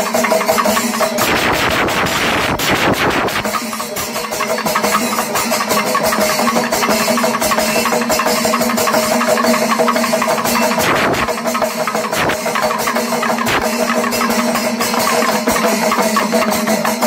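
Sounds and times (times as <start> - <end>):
cymbals: 0.0 - 17.0
heavy drumming: 0.0 - 17.0
quick light drum strokes: 0.0 - 17.0
held drone: 10.2 - 13.8.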